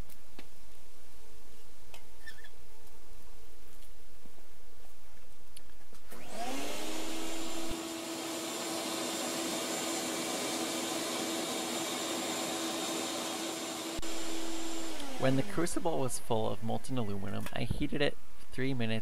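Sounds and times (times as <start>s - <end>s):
shop vac motor whining: 6.1s - 16.5s.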